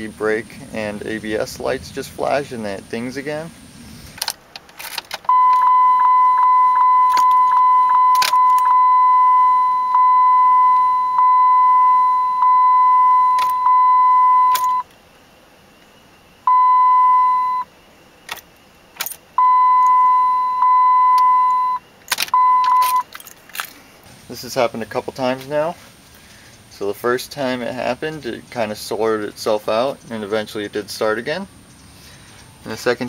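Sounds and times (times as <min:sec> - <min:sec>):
electronic warning chime: 0:05.3 - 0:14.9, 0:16.5 - 0:17.7, 0:19.4 - 0:21.8, 0:22.4 - 0:23.1
keys jangling: 0:22.1 - 0:23.8.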